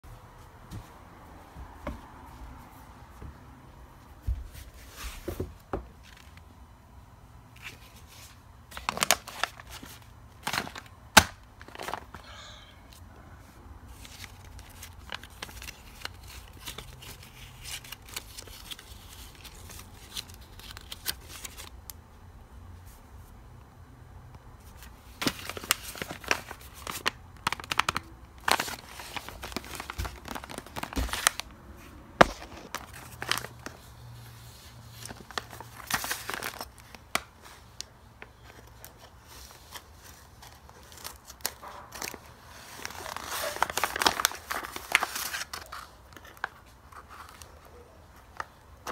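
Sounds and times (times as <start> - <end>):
paper bag and bills crinkling: 7.6 - 12.4, 13.9 - 21.7, 24.7 - 48.9.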